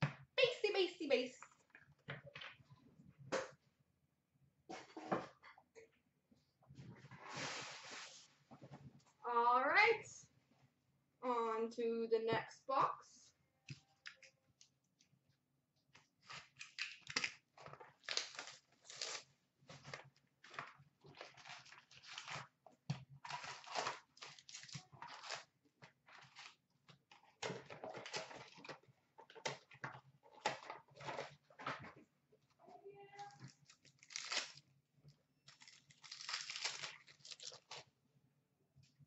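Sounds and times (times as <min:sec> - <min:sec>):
plastic wrap tearing: 0:16.2 - 0:22.6, 0:23.2 - 0:25.5, 0:33.4 - 0:34.7, 0:35.5 - 0:37.9
foil packs crinkling: 0:16.3 - 0:22.5, 0:23.2 - 0:25.5, 0:33.6 - 0:34.6, 0:35.5 - 0:37.8.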